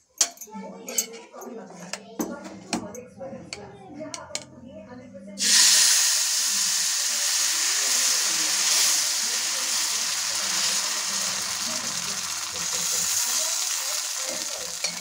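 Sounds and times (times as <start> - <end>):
batter sizzling on hot griddle: 5.4 - 15.0.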